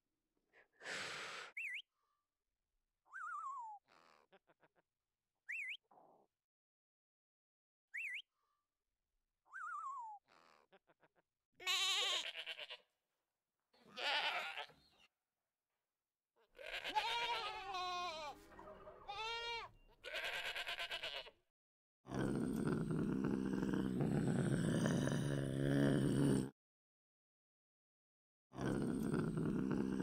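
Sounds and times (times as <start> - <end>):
goats bleating: 11.6 - 12.8, 13.8 - 14.8, 16.6 - 18.5, 19.1 - 21.3.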